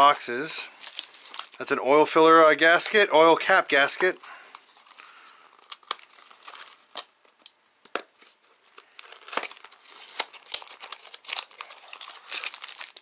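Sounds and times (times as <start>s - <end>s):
packaging crinkling and rustling: 0.7s - 1.8s, 3.9s - 13.0s.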